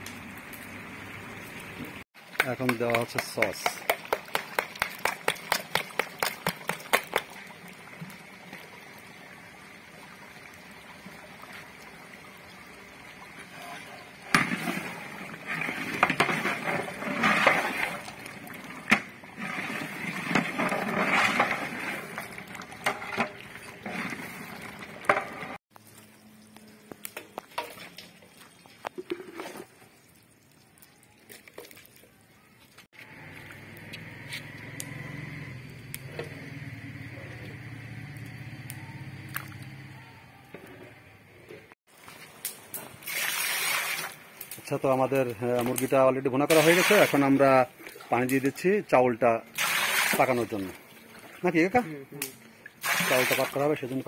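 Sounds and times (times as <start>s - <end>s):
pot simmering: 0.0s - 40.2s
metal ladle scraping pot: 13.4s - 25.6s
scooping into metal basin: 13.4s - 25.6s, 27.2s - 29.9s.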